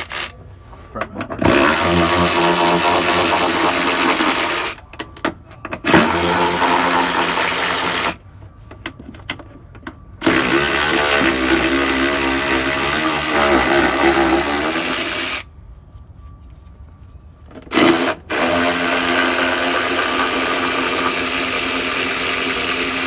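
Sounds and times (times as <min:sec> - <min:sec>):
electric ratchet whirring: 0:00.0 - 0:00.3, 0:01.4 - 0:04.8, 0:05.9 - 0:08.2, 0:10.2 - 0:15.4, 0:17.7 - 0:23.0.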